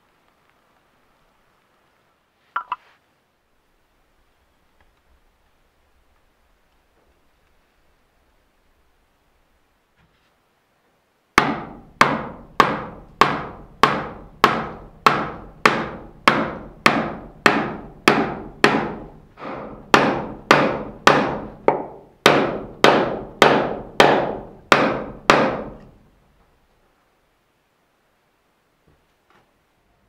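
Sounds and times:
mallet striking wooden peg: 2.6s - 2.8s, 11.4s - 25.9s.

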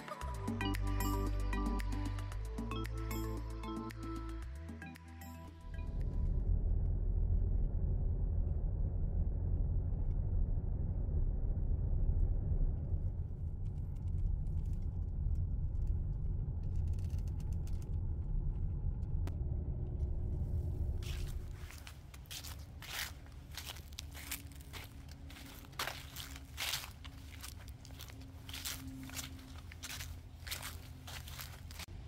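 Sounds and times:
car cabin road rumble: 5.8s - 32.0s
footsteps on dry leaves: 21.0s - 32.0s.

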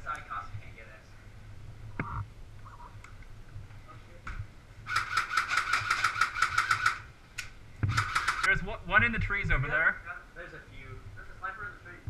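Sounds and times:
airsoft rifle shots: 4.9s - 7.1s, 7.9s - 8.5s.

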